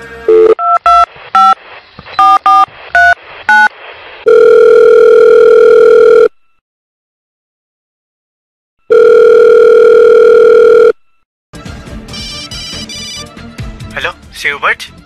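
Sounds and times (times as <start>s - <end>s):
phone ringback tone: 0.3s - 1.6s, 4.3s - 6.4s, 8.9s - 11.0s, 12.2s - 13.2s.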